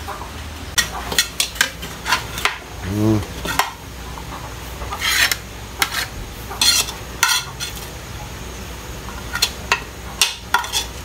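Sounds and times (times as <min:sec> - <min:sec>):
metal spatula scraping a wok: 0:00.8 - 0:02.6, 0:03.3 - 0:03.8, 0:04.8 - 0:07.9, 0:09.2 - 0:11.0.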